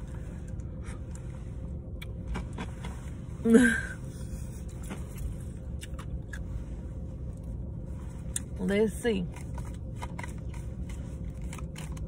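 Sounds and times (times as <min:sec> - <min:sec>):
low rumble inside a car: 0:00.0 - 0:12.0.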